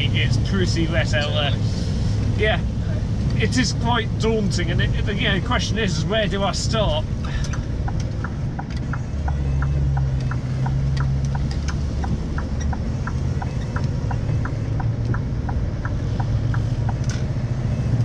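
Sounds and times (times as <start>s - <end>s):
diesel engine droning: 0.0s - 18.0s
regular light ticking: 7.4s - 18.0s.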